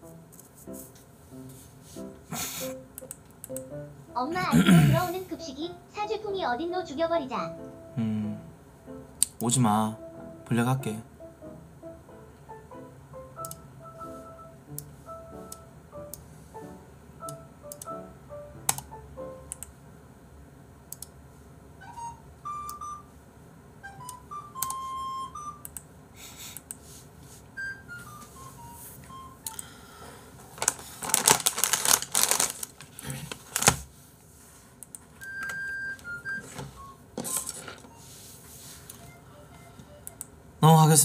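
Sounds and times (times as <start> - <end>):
quiet background music: 0.0 - 25.9, 26.8 - 32.6, 35.2 - 41.0
sharp clicks: 3.0 - 3.7, 13.4 - 13.6, 17.2 - 18.0, 19.5 - 19.7, 20.9 - 21.2, 25.6 - 25.9
rapid keyboard typing: 18.6 - 19.7.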